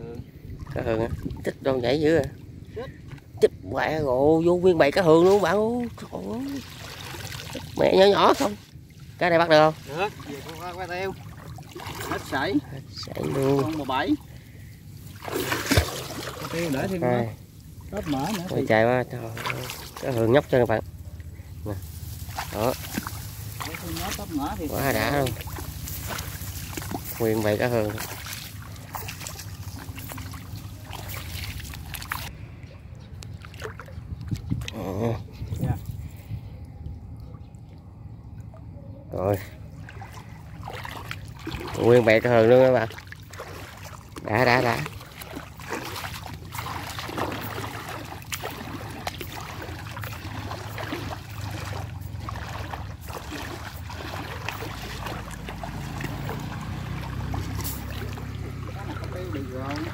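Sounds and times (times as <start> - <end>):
wind rumble on microphone: 0.0 - 4.3, 29.7 - 37.8
small water splashes: 0.2 - 3.5, 4.6 - 32.4, 33.1 - 36.2, 36.8 - 59.9
water trickling and dripping from net: 4.8 - 32.3, 39.3 - 59.9.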